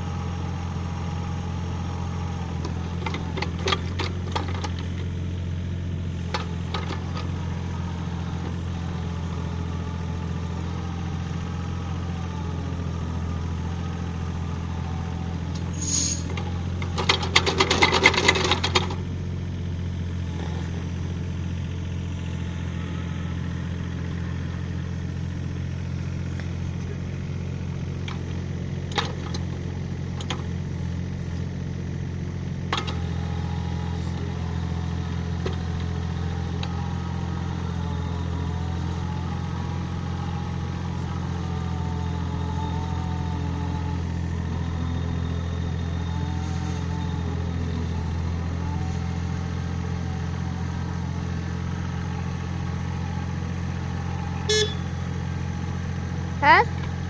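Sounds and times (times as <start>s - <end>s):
excavator engine running: 0.0s - 57.0s
earth auger boring into soil: 14.3s - 19.1s.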